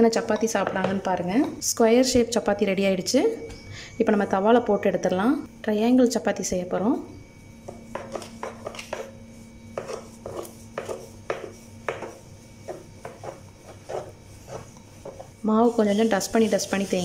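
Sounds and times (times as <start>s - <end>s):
rolling pin knocking and rubbing: 9.8s - 15.4s.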